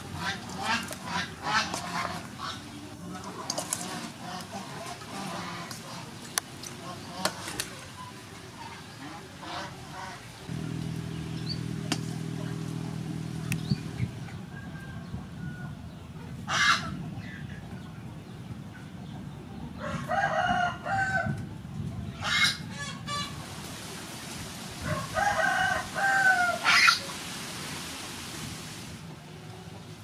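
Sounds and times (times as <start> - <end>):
chickens calling: 0.0 - 21.4, 22.1 - 23.4, 24.8 - 27.2
low steady hum: 10.5 - 15.4
rooster crowing: 14.3 - 15.8, 19.8 - 21.4, 24.8 - 26.9
chicken squawks: 16.5 - 17.0, 22.2 - 23.4, 25.2 - 27.1.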